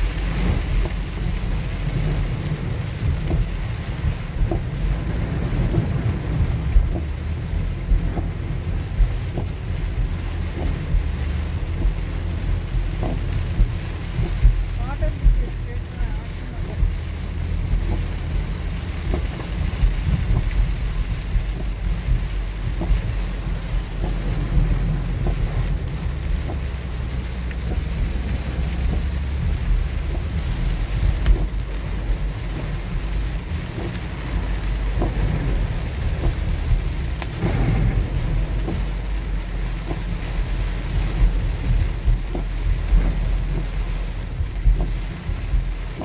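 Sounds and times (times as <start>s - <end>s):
heavy rain on vehicle: 0.0s - 46.0s
raindrops hitting windshield: 0.0s - 46.0s
road and tyre rumble: 0.0s - 46.0s.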